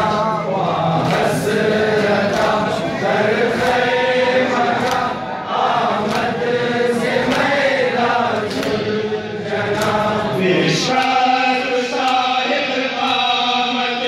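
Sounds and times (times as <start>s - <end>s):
crowd of men chanting: 0.0s - 14.0s
hands slapping chests: 4.8s - 5.2s, 6.0s - 6.4s, 8.3s - 8.8s, 9.7s - 10.1s.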